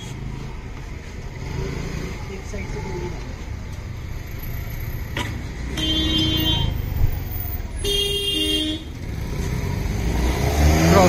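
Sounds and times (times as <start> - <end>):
low rumble of traffic: 0.0 - 11.0
vehicle horn blasts: 5.8 - 6.8, 7.8 - 8.9.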